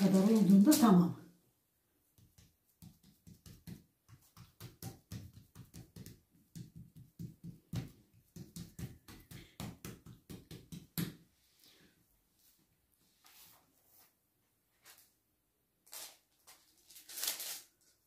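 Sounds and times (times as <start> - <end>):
fingertips patting dough: 2.0 - 11.3.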